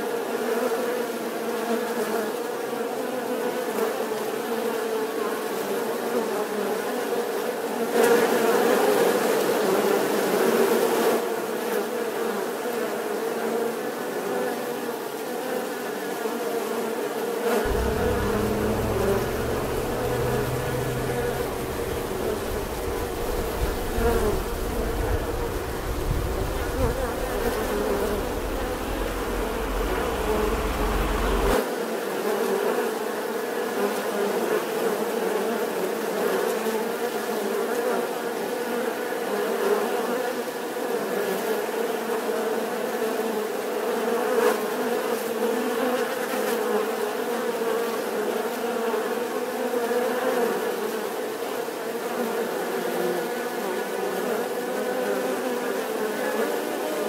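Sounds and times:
honeybees buzzing: 0:17.7 - 0:31.6
low rumble: 0:17.7 - 0:31.6.

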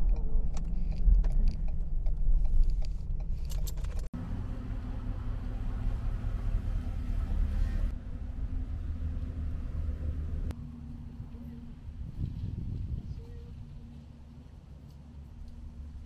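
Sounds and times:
truck engine rumble: 0:00.0 - 0:16.0.

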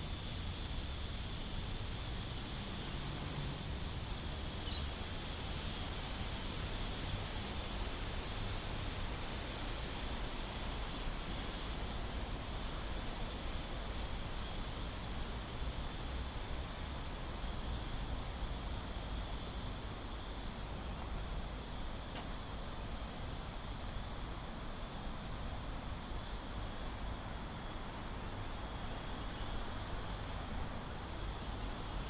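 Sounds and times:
cicadas buzzing: 0:00.0 - 0:32.0.

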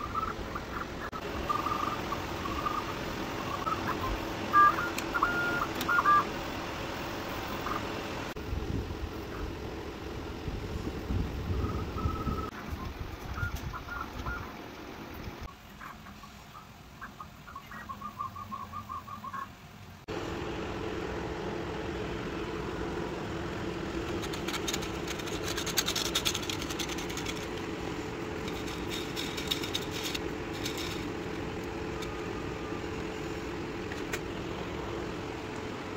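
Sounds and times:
stepper motors chirping: 0:00.0 - 0:08.4, 0:11.4 - 0:20.4, 0:21.1 - 0:35.9
steady mechanical hum: 0:00.0 - 0:35.9
clicks and rattles: 0:23.9 - 0:27.8, 0:28.4 - 0:32.3.

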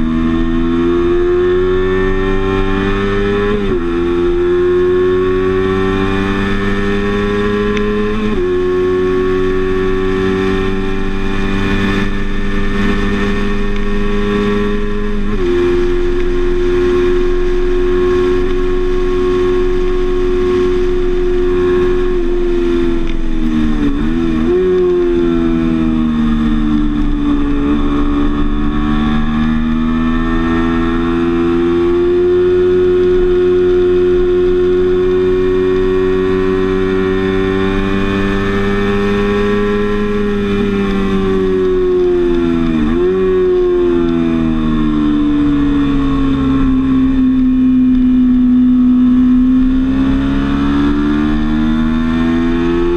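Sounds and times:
motorcycle engine revving high: 0:00.0 - 0:52.9.

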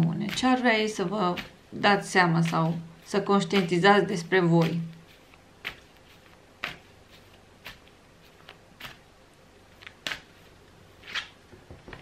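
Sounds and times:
cards being shuffled: 0:02.5 - 0:09.1, 0:09.7 - 0:12.0.

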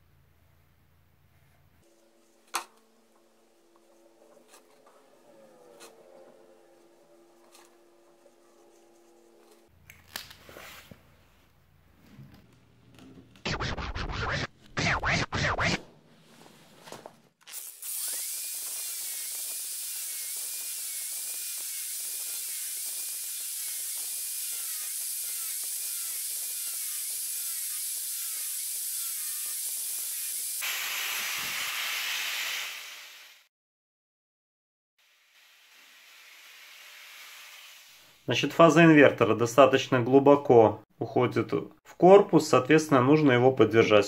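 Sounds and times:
angle grinder cutting plastic pipe: 0:01.9 - 0:10.3, 0:13.4 - 0:15.8, 0:17.4 - 0:32.8.

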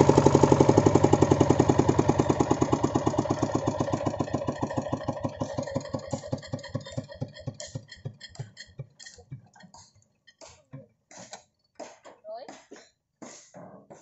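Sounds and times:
diesel engine running down: 0:00.0 - 0:08.4.

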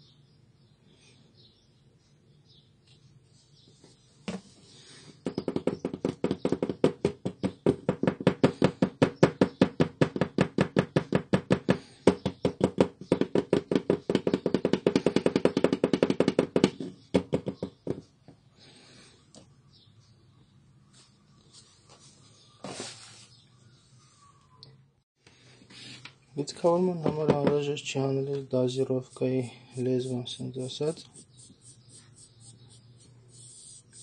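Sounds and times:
knocking on plastic cartridge: 0:05.2 - 0:18.0, 0:27.0 - 0:27.7.

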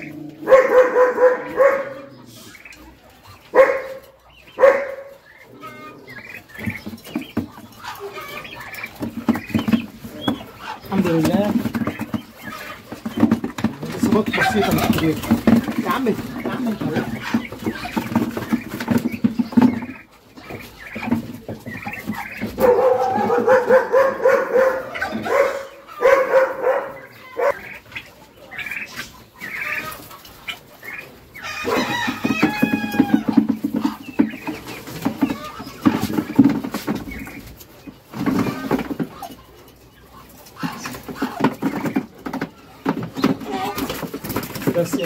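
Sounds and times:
chickens clucking: 0:00.0 - 0:45.0
rooster crowing: 0:31.4 - 0:33.4.

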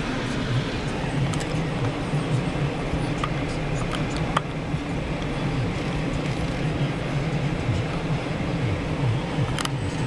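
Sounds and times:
engine and road rumble: 0:00.0 - 0:10.0.

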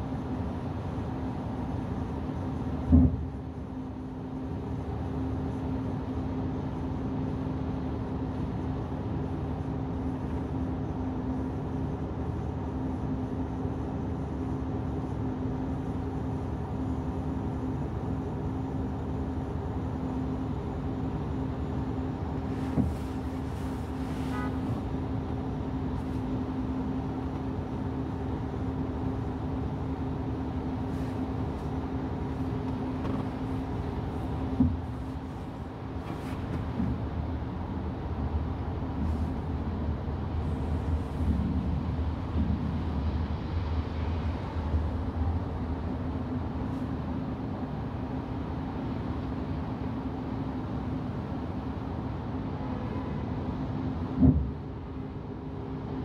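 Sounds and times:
car driving on wet road: 0:22.2 - 0:51.8
short tone: 0:24.2 - 0:24.7.

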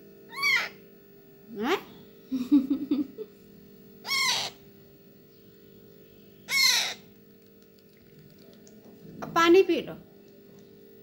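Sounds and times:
parrot chick begging squawks: 0:00.3 - 0:00.8, 0:04.0 - 0:04.6, 0:06.4 - 0:07.1.

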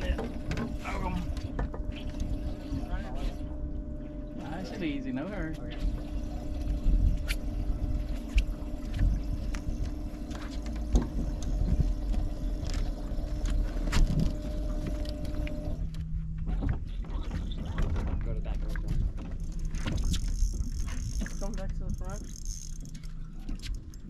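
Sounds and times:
electric motor humming: 0:00.0 - 0:16.4
low rumble: 0:00.0 - 0:24.0.

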